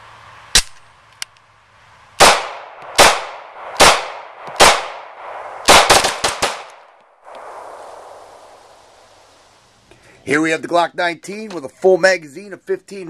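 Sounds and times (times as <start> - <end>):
pistol shots with echo: 2.2 - 6.8.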